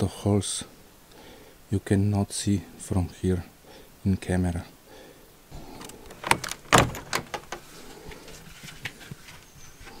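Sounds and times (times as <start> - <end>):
door knocks and clicks: 5.8 - 7.6.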